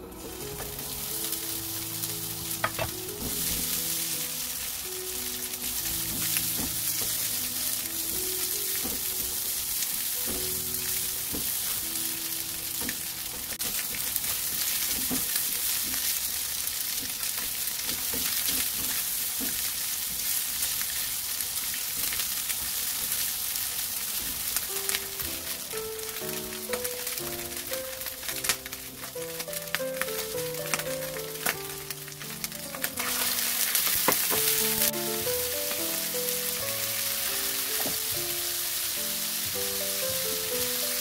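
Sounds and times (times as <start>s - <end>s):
meat sizzling in oil: 0.0s - 41.0s
spatula tapping pan: 2.6s - 3.4s.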